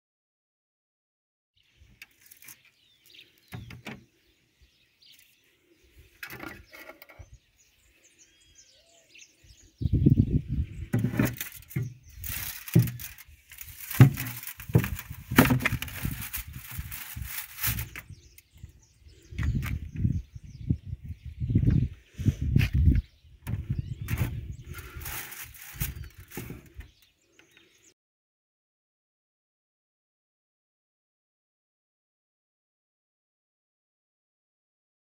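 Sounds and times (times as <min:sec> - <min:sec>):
aluminium foil rustling and knocking: 0:02.0 - 0:02.7, 0:03.4 - 0:04.0, 0:10.8 - 0:18.2, 0:23.5 - 0:27.0.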